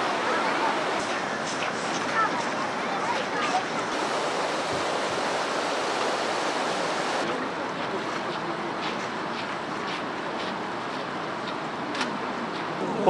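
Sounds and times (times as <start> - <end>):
river flowing over stones: 0.0 - 1.9, 3.8 - 7.5.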